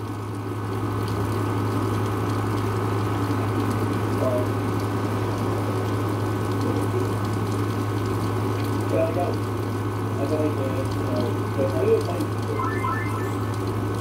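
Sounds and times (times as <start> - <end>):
low hum: 12.5 - 14.0.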